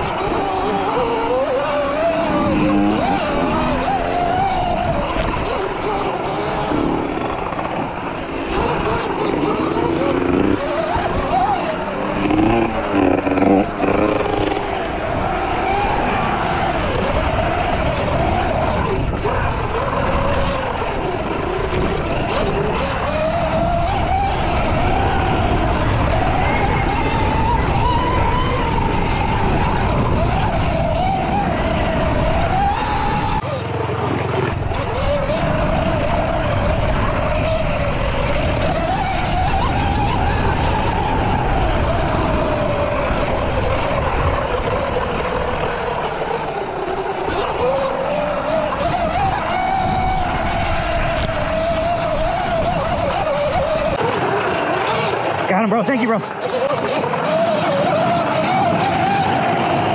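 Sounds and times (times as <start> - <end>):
electric dirt bike motor whining: 0.0 - 59.9
wind and tyre noise: 0.0 - 59.9.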